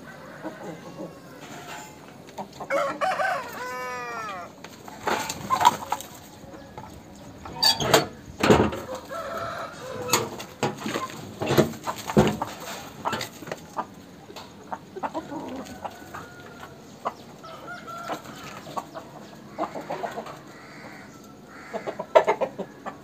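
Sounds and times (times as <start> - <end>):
rooster crowing: 0.0 - 2.0, 2.7 - 4.6, 8.8 - 10.4, 15.2 - 18.6, 20.5 - 22.1.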